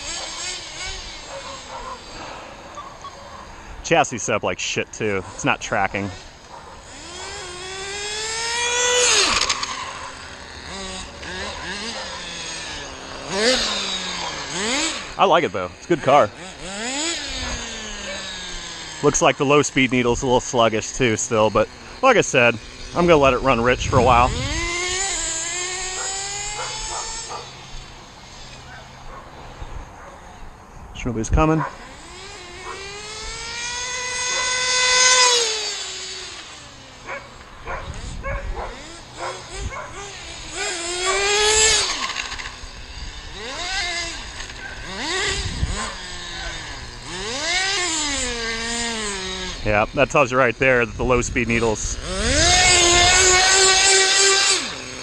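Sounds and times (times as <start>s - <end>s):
small glow engine revving: 0.0s - 3.8s, 5.0s - 30.4s, 31.1s - 55.0s.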